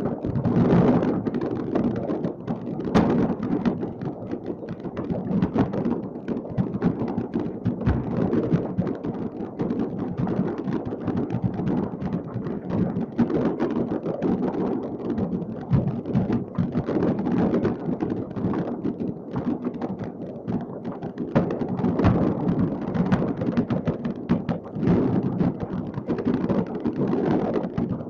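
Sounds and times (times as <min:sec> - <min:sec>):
fireworks popping and crackling: 0:00.0 - 0:28.0.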